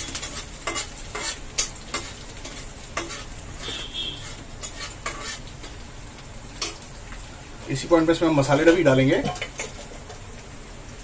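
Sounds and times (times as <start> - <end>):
metal spatula scraping a pan: 0.0 - 5.9
onions sizzling in oil: 0.0 - 11.0.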